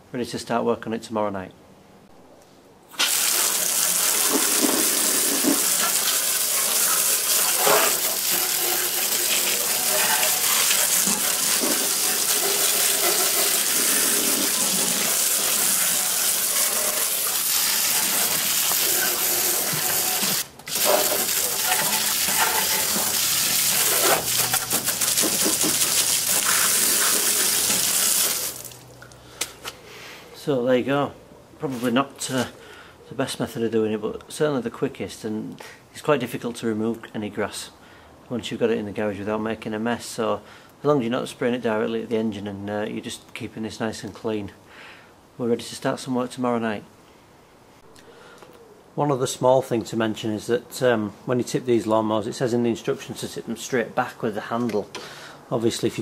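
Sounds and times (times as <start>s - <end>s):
hose spraying water: 2.9s - 29.0s.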